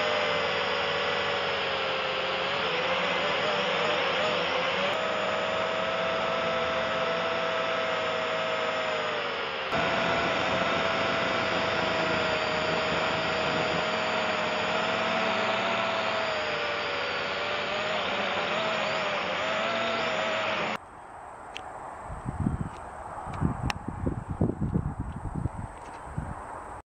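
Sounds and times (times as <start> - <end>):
drone propellers whirring: 0.0 - 20.8.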